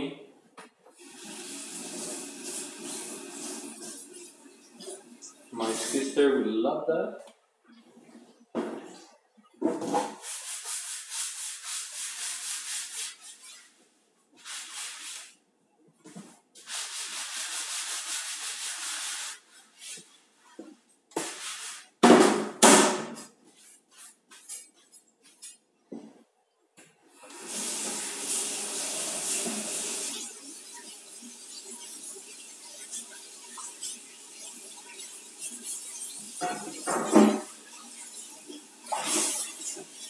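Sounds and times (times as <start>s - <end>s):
dishes being scrubbed: 0.9s - 6.3s, 7.7s - 15.4s, 16.1s - 22.2s, 23.2s - 25.6s, 27.4s - 40.0s
dishes knocking and clattering: 9.6s - 10.2s, 36.4s - 37.6s.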